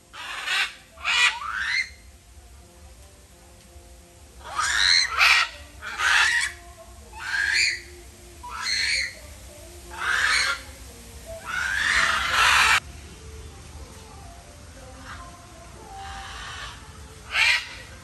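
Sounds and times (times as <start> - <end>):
macaws squawking: 0.0 - 2.1, 4.3 - 12.8, 14.9 - 15.3, 15.9 - 18.0.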